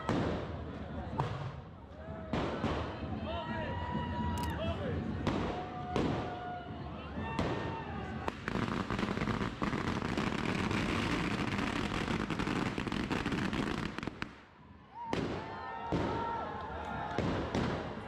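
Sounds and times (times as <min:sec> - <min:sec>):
firecrackers cracking and banging: 0:07.2 - 0:14.5, 0:17.1 - 0:18.0.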